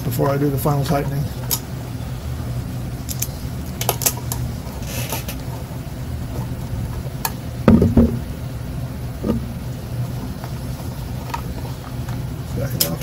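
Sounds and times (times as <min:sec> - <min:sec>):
knock of frame being handled: 0:07.7 - 0:08.2.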